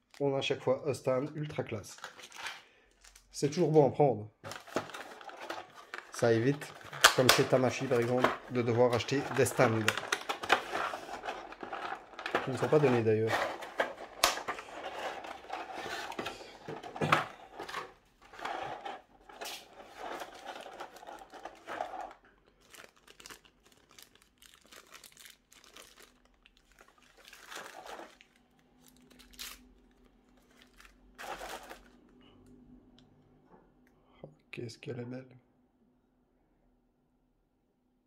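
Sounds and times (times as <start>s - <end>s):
packaging crinkling and tearing: 1.8s - 3.6s, 4.4s - 32.0s.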